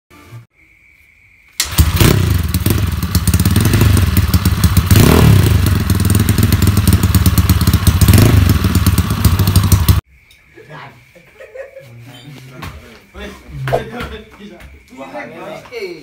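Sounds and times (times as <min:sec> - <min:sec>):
scooter engine revving: 0:01.6 - 0:10.0.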